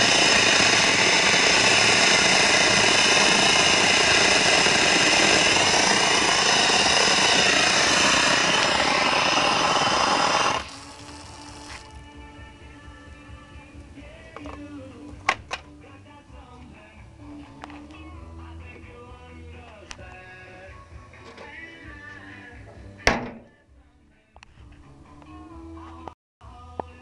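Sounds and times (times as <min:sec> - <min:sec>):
pressure washer spraying: 0:00.0 - 0:12.0.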